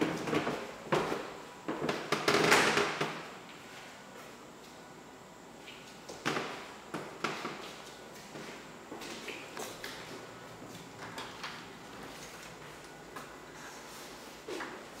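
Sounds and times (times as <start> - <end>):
footsteps on hardwood floor: 6.9 - 15.0.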